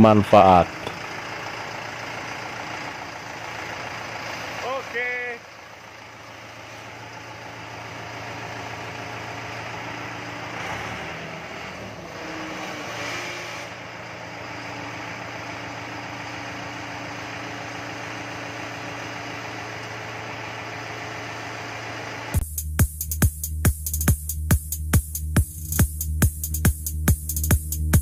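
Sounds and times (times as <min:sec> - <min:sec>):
tractor diesel engine idling: 0:00.0 - 0:12.4, 0:13.7 - 0:22.4.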